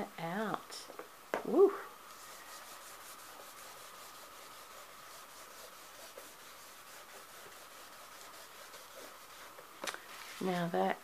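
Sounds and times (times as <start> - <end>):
paper rubbing and scratching: 2.2 - 10.6.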